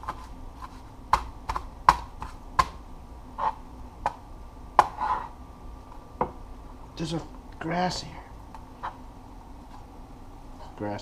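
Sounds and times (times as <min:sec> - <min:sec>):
knife chopping on cutting board: 0:04.8 - 0:05.3.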